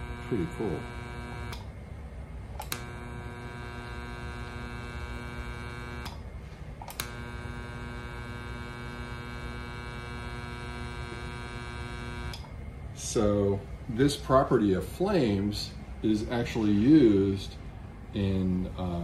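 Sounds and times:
transformer buzzing: 0:00.0 - 0:18.9
power switch click: 0:01.4 - 0:01.7, 0:02.6 - 0:03.0, 0:06.8 - 0:07.4.

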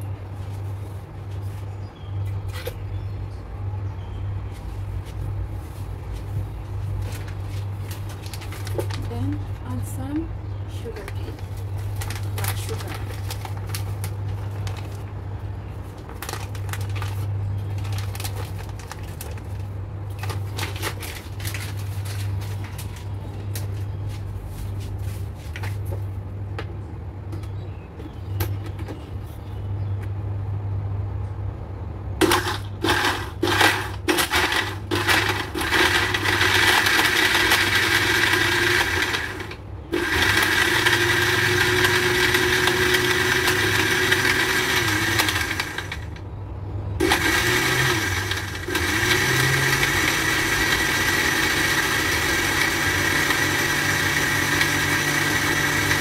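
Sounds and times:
blender motor running: 0:32.2 - 0:46.1, 0:47.0 - 0:56.0.

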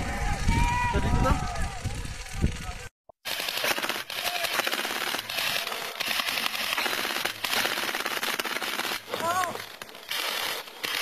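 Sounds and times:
rapid gunfire crackle: 0:03.2 - 0:11.0.

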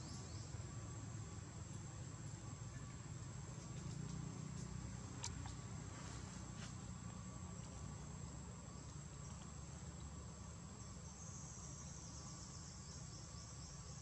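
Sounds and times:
insects trilling: 0:00.0 - 0:14.0
low steady rumble: 0:00.0 - 0:14.0
pulsing insect trill: 0:07.9 - 0:14.0.

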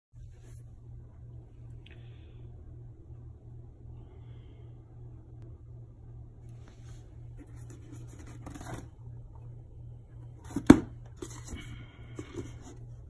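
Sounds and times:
low hum: 0:00.2 - 0:13.0
cardboard box rustling: 0:07.4 - 0:08.9, 0:10.4 - 0:11.6.

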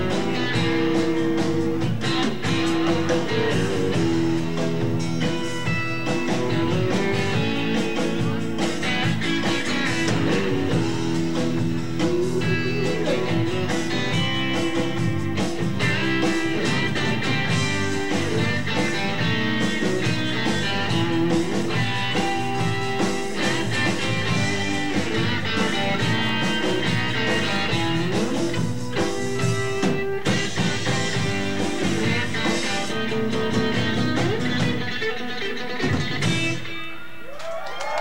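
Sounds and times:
acoustic guitars strumming: 0:00.0 - 0:37.0.

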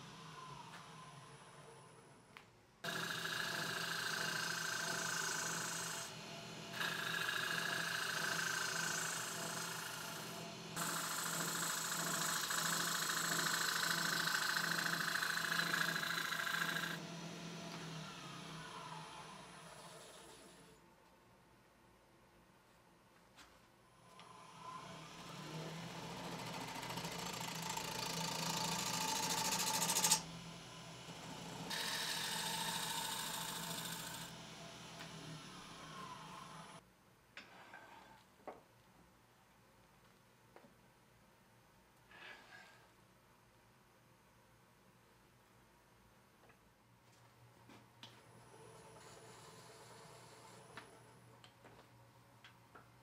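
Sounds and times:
tool scraping spinning wood: 0:02.8 - 0:20.6, 0:25.2 - 0:30.3, 0:31.1 - 0:34.4, 0:48.6 - 0:51.0
wood lathe humming: 0:02.8 - 0:20.7, 0:24.2 - 0:36.8, 0:48.5 - 0:51.0.

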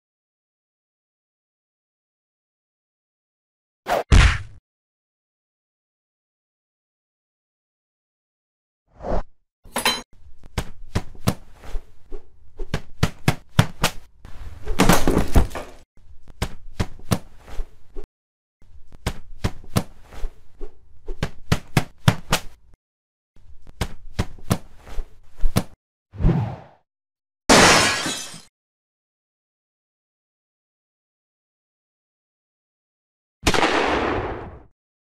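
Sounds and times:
punch impacts: 0:04.1 - 0:04.6.

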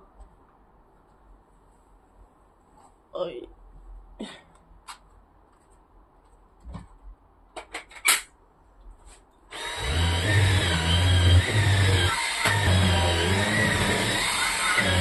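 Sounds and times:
cordless vacuum running: 0:09.5 - 0:15.0.

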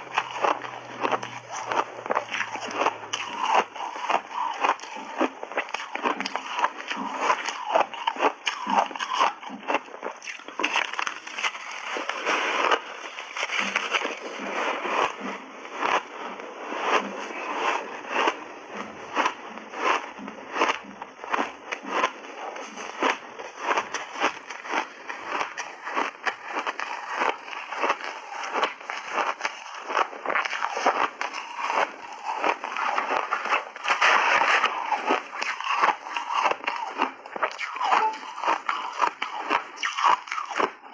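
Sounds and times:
ice being chewed: 0:00.0 - 0:40.9.

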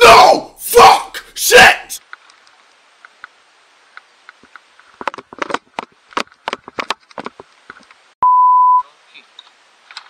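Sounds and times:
clattering knocks and rustles: 0:04.4 - 0:08.0
censor bleep: 0:08.2 - 0:08.8.

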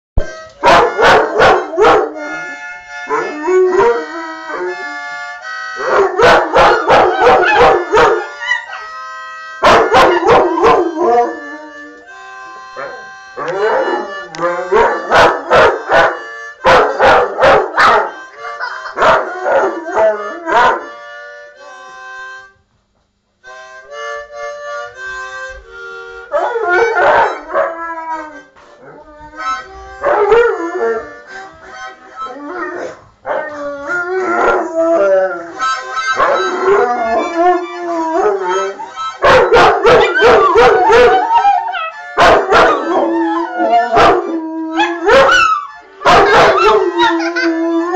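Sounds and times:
harmonica chords: 0:00.2 - 0:47.9
dogs howling: 0:00.6 - 0:02.5, 0:03.1 - 0:05.0, 0:05.8 - 0:09.0, 0:09.6 - 0:12.0, 0:12.8 - 0:18.1, 0:19.0 - 0:20.9, 0:26.3 - 0:31.1, 0:32.2 - 0:47.9.

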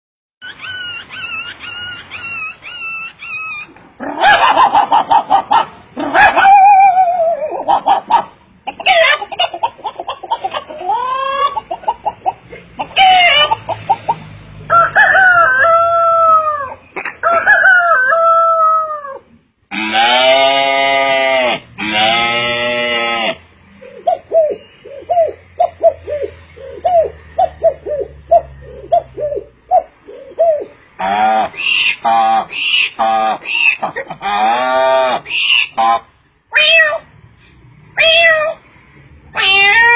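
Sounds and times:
man imitating fowl calls: 0:29.8 - 0:36.1.

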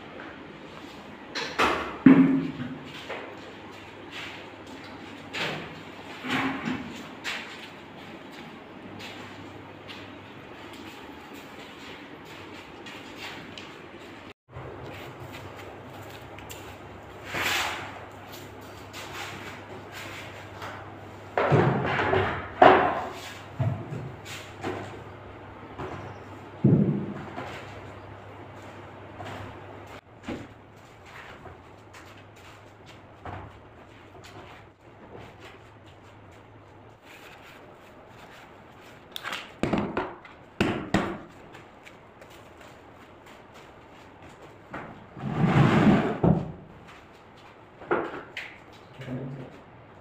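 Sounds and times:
plastic crates thudding on concrete: 0:02.0 - 0:02.8, 0:39.6 - 0:41.3, 0:44.8 - 0:46.7.

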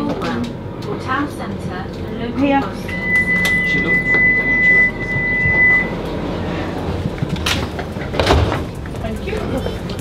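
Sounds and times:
low tram hum: 0:00.0 - 0:10.0
tram door warning beep: 0:02.8 - 0:06.1.

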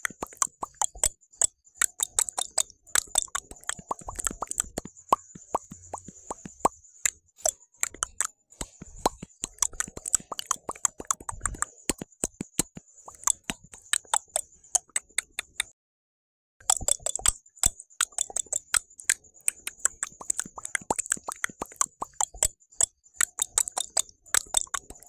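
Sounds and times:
mouth clicks and pops: 0:00.0 - 0:15.7, 0:16.6 - 0:25.0.

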